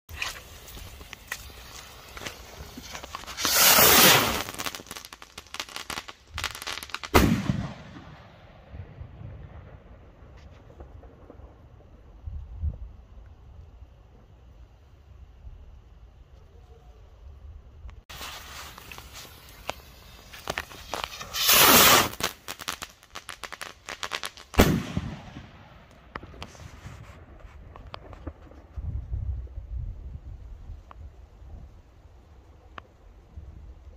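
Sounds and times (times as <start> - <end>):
crackling pops: 0.1 - 8.2, 17.8 - 28.8
rocket launching with rushing hiss: 0.2 - 9.6, 18.1 - 27.4
rocket whoosh: 2.3 - 4.8, 18.1 - 22.5
firework bang with echo: 7.1 - 9.8, 24.6 - 25.6.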